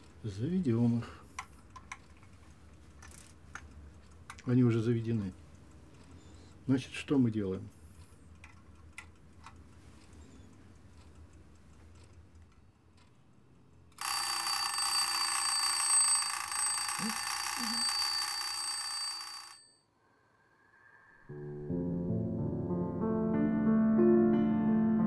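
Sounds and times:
clock ticking: 0:00.0 - 0:19.5
alarm bell ringing: 0:14.0 - 0:19.9.

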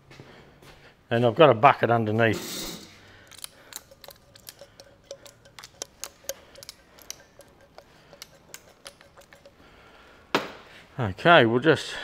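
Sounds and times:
oil can trigger clicking: 0:03.2 - 0:09.6.

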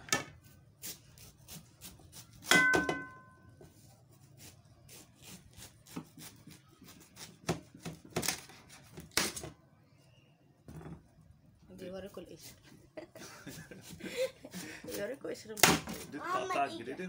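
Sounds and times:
knock with metallic ring: 0:02.5 - 0:03.4.

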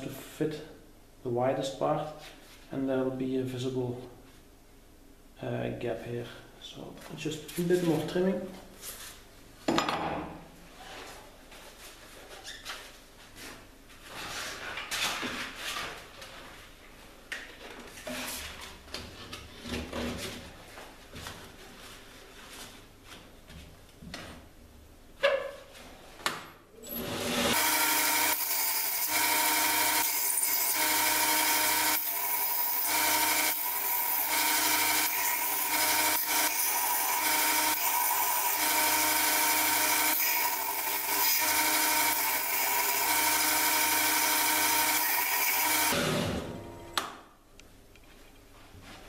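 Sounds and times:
belt grinder grinding steel: 0:26.9 - 0:46.2.

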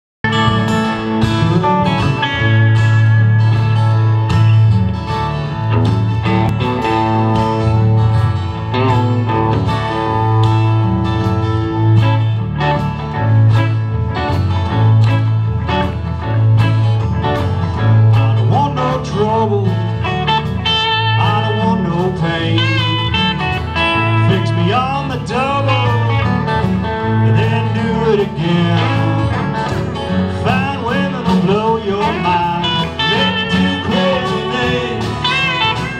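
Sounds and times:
live country-rock band: 0:00.2 - 0:35.9
lead vocal singing: 0:18.4 - 0:20.1, 0:27.0 - 0:29.5, 0:30.3 - 0:35.9.

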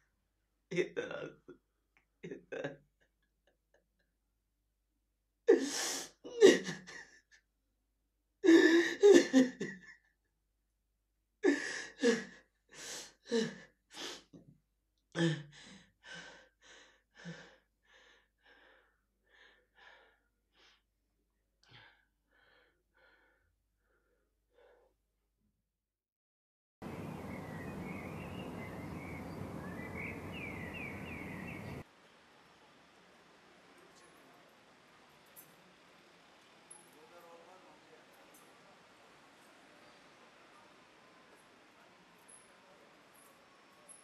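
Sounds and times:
man sobbing: 0:00.7 - 0:01.6, 0:02.2 - 0:02.9, 0:05.5 - 0:07.4, 0:08.4 - 0:10.1.

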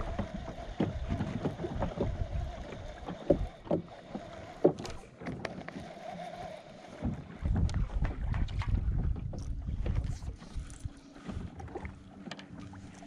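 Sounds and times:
wind buffeting microphone: 0:00.0 - 0:03.8, 0:07.0 - 0:11.8
water lapping against boat hull: 0:00.0 - 0:13.0.

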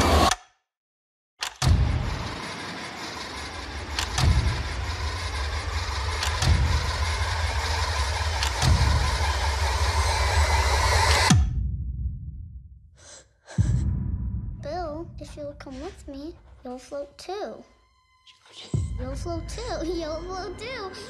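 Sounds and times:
heavy booming hits: 0:01.6 - 0:02.5
rumbling drone: 0:01.6 - 0:17.0, 0:18.7 - 0:21.0.

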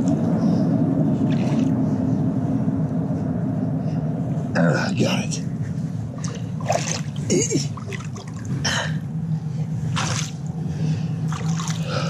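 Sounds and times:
steady low hum: 0:00.0 - 0:12.0
river water splashing: 0:06.1 - 0:08.5, 0:09.9 - 0:10.5, 0:11.3 - 0:12.0.

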